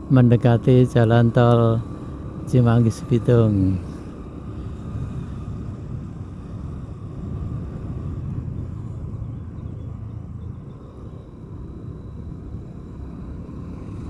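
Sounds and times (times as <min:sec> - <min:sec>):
vehicle rumble on road: 0:00.0 - 0:14.0.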